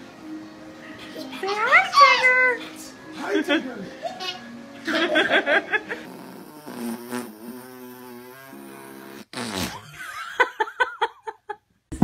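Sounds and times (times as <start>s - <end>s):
vocal bursts: 6.0s - 9.8s
blown raspberry: 6.0s - 10.0s.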